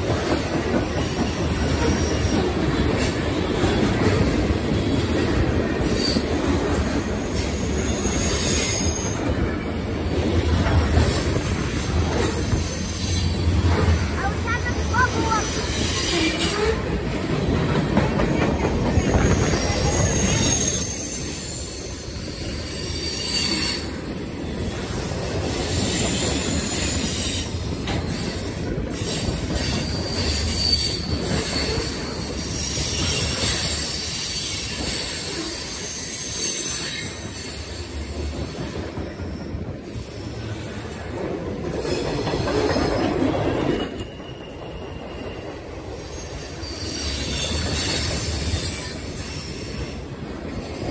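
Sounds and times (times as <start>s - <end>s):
train wheels rumbling on rails: 0.0s - 50.9s
high-pitched wheel squeal: 19.1s - 25.1s, 29.0s - 37.9s, 43.7s - 49.9s.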